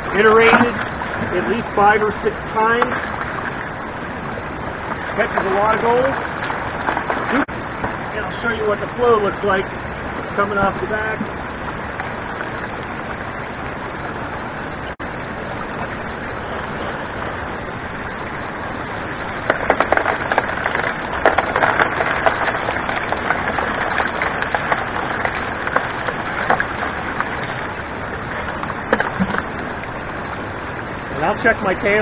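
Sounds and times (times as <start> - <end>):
gravel and stones rattling: 0.0 - 2.0, 4.9 - 8.7, 19.3 - 30.1
water rushing and splashing: 0.0 - 32.0.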